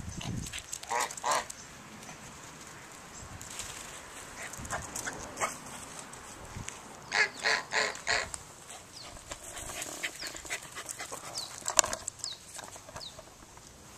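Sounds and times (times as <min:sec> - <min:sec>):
goose honking: 0:07.1 - 0:08.4
small birds chirping: 0:08.8 - 0:13.4.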